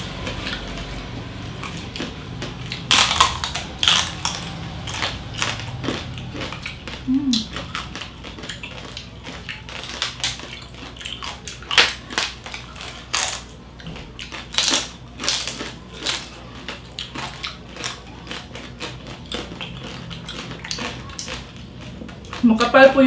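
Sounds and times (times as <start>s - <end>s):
crunching crisp roasted skin: 0.0s - 22.5s.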